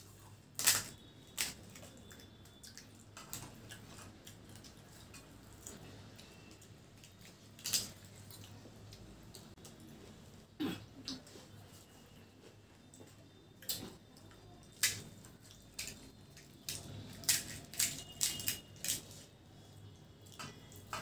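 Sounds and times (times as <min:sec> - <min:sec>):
fried shells cracking: 0:00.4 - 0:05.8, 0:07.0 - 0:08.4, 0:14.7 - 0:19.2.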